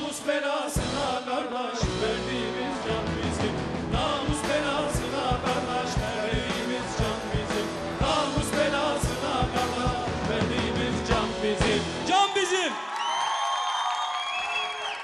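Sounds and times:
drum kit beat: 1.8 - 12.1.

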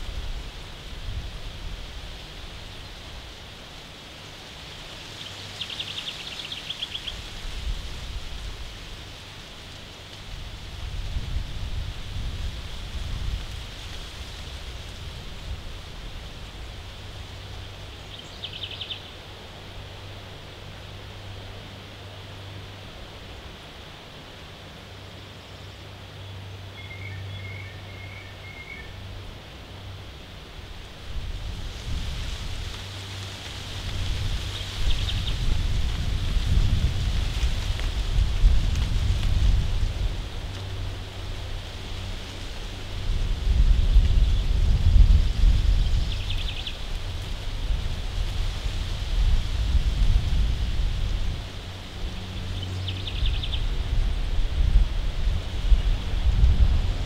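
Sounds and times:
wind rumble on microphone: 0.0 - 24.6, 26.3 - 57.0
wind in trees: 0.0 - 57.0
songbird trill: 5.2 - 7.3, 17.6 - 19.2, 25.2 - 29.0, 34.4 - 35.5, 45.6 - 46.9, 52.1 - 53.8
bird chirping: 18.0 - 19.1, 26.8 - 29.0.

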